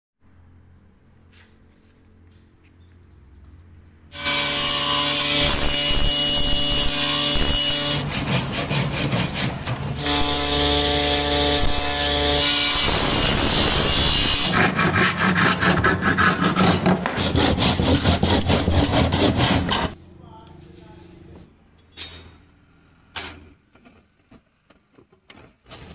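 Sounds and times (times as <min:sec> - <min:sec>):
electric planer cutting wood: 0:04.1 - 0:16.5
handsaw cutting wood: 0:04.1 - 0:20.0.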